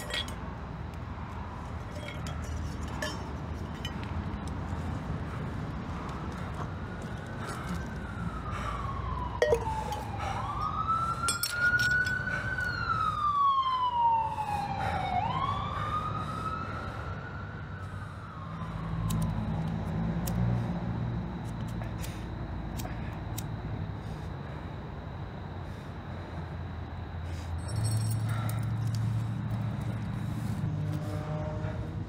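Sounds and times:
emergency siren wailing: 0.0 - 3.2, 4.7 - 21.7, 28.3 - 32.0.

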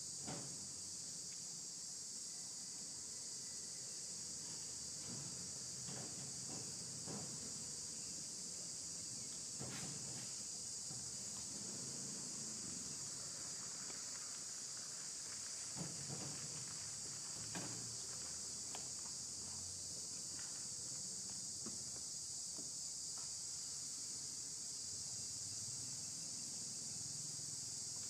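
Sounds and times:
insects buzzing: 0.0 - 28.0
faint taps and rustles: 5.0 - 7.5, 13.8 - 19.6.

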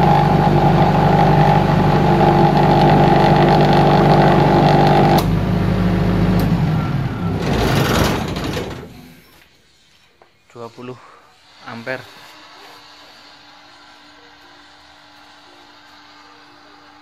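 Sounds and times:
generator engine running: 0.0 - 9.2.

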